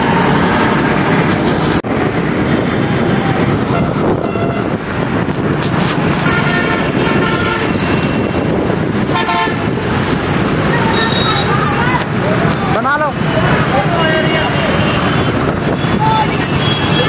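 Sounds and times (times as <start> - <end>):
traffic noise: 0.0 - 17.0
wind noise from moving vehicle: 0.0 - 17.0
car horn honks: 6.2 - 8.0, 14.2 - 17.0.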